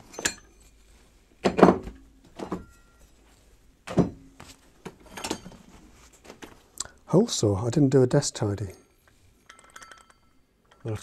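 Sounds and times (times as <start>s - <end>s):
tools clunking on workbench: 1.4s - 2.9s, 3.9s - 5.7s.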